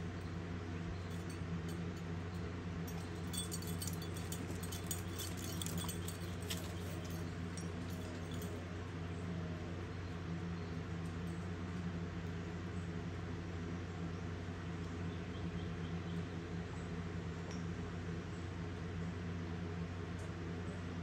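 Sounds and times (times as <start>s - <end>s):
low machine hum: 0.0s - 21.0s
metallic jingling and ticking: 0.9s - 8.9s.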